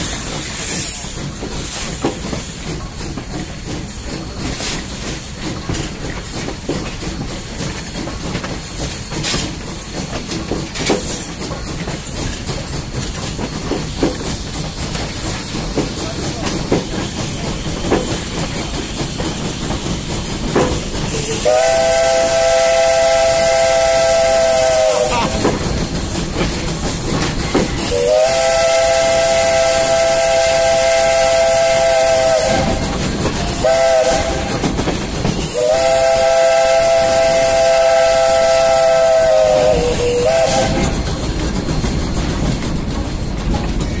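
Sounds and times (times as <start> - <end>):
steam hiss and train running: 0.0 - 44.0
steam locomotive chime whistle: 21.1 - 25.6, 27.8 - 34.7, 35.4 - 41.0.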